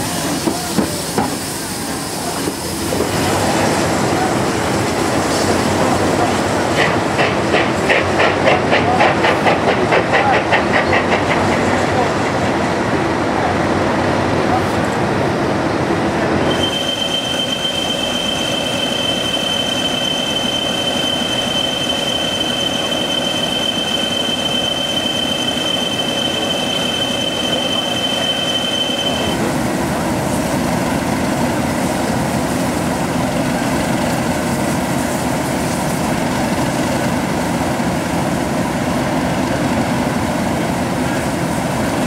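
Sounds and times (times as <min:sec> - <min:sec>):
high-pitched squeal: 0:16.5 - 0:29.4.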